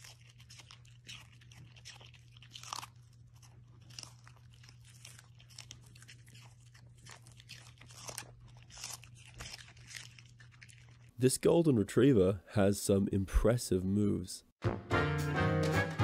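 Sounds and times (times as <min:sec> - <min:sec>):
dogs crunching vegetable stalks: 0:00.0 - 0:11.2.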